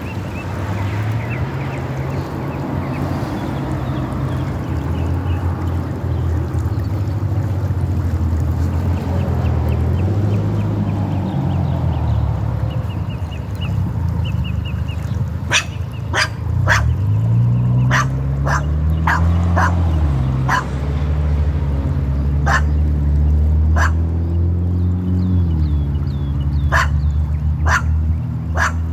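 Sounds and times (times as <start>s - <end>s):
dog barking: 15.5s - 17.0s, 17.9s - 19.8s, 20.5s - 20.7s, 22.4s - 22.7s, 23.8s - 24.0s, 26.7s - 27.0s, 27.6s - 28.0s, 28.6s - 28.9s.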